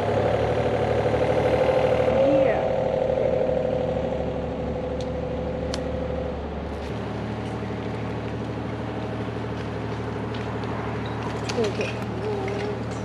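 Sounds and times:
high whine: 0:00.0 - 0:09.5
excavator engine running: 0:00.0 - 0:13.0.

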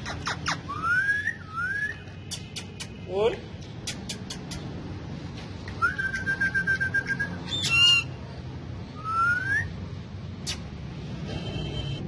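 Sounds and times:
parrot calling: 0:00.0 - 0:02.0, 0:07.4 - 0:08.2.

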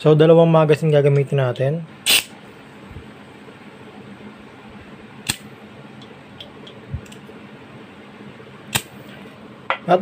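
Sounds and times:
sharp nozzle click: 0:02.1 - 0:02.3, 0:05.2 - 0:05.5.

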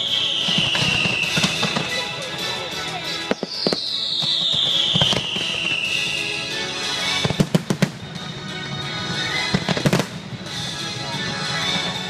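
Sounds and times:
firework falling whistle: 0:00.0 - 0:02.6, 0:03.3 - 0:06.6
firework bangs: 0:00.0 - 0:12.0
show music: 0:00.0 - 0:12.0.

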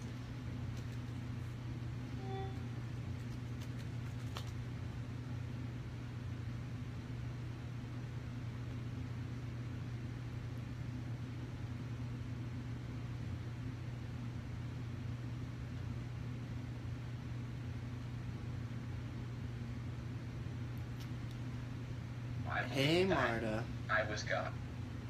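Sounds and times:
low hum: 0:00.0 - 0:25.0.

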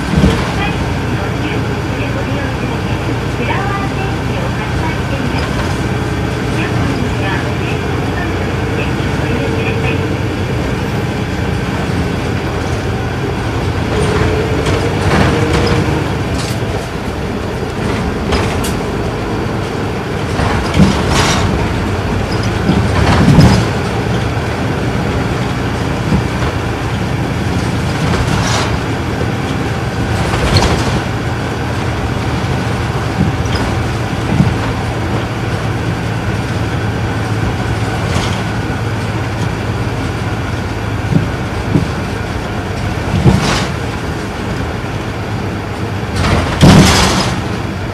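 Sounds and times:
bus diesel engine droning: 0:00.0 - 0:47.9
knocks and rattles: 0:10.6 - 0:47.9.

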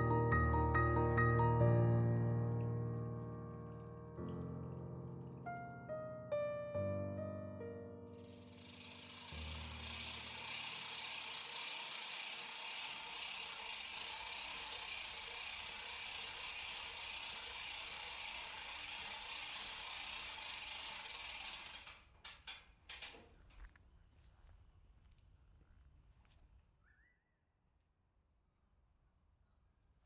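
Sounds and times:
piano music: 0:00.0 - 0:10.3
mechanical rattling whir: 0:08.1 - 0:23.3.

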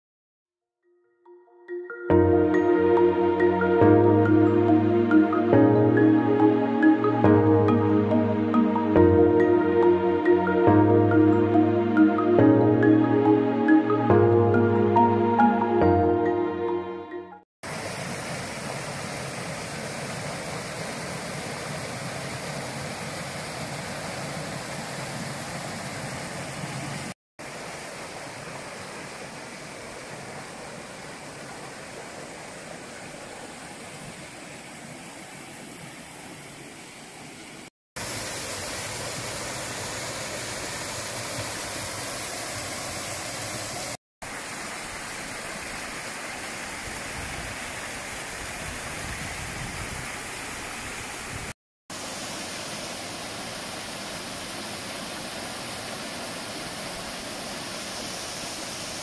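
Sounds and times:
stream rushing over rocks: 0:17.6 - 0:59.0.

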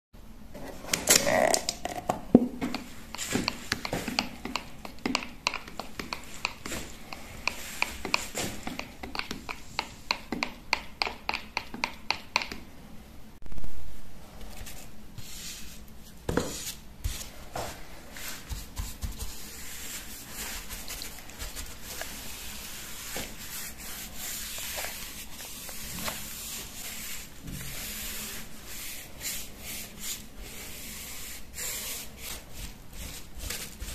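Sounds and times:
paint brush strokes: 0:02.7 - 0:09.9, 0:14.4 - 0:33.9.

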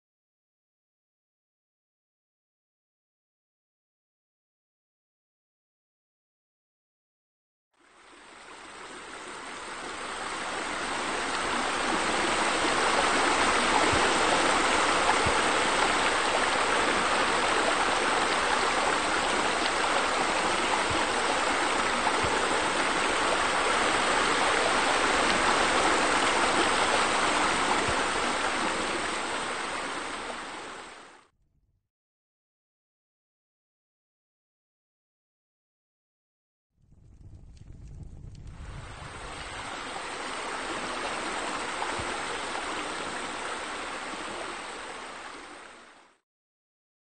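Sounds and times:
running spilling water: 0:08.2 - 0:30.9.

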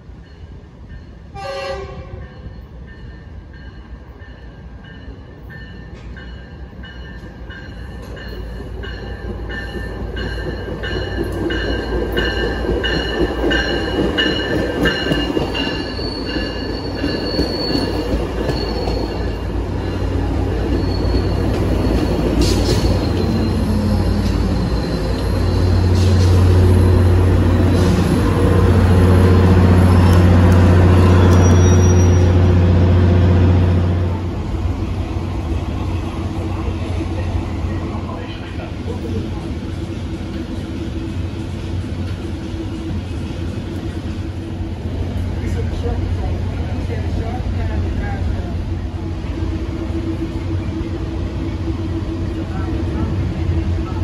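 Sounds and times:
train wheel and brake squeal: 0:00.2 - 0:32.5
locomotive engine hum: 0:03.3 - 0:54.0.

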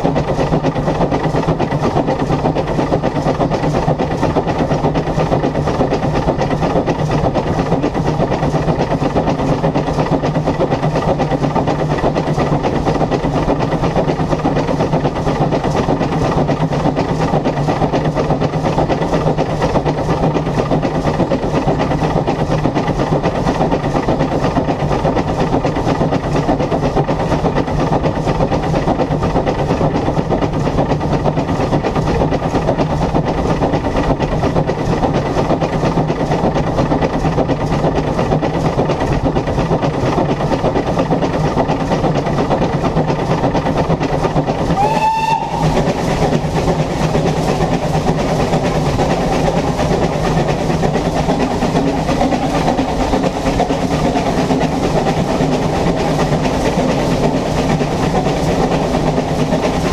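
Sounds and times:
steam locomotive running on rails: 0:00.0 - 0:59.9.

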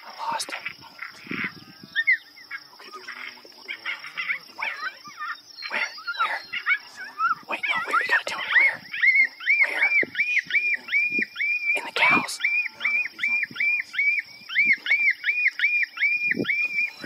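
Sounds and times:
coyotes yipping and howling: 0:00.0 - 0:17.0.

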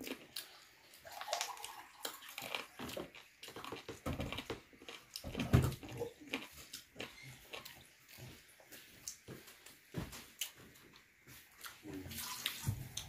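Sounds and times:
wet chewing and lip-smacking: 0:00.0 - 0:09.7.

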